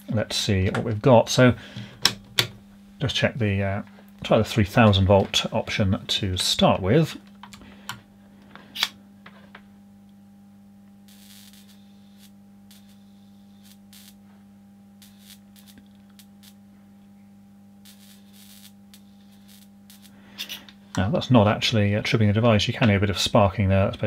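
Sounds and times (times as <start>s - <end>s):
steady electrical hum: 0.0s - 24.0s
electrical sparking crackle: 11.1s - 14.3s, 15.0s - 16.6s, 17.8s - 20.6s.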